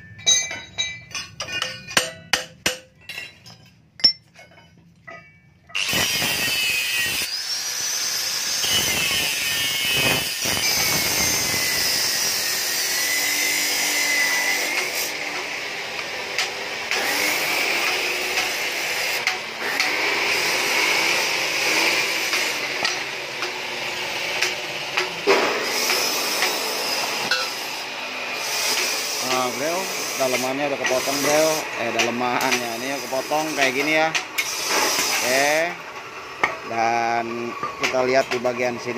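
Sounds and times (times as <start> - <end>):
angle grinder cutting steel: 5.7 - 38.9.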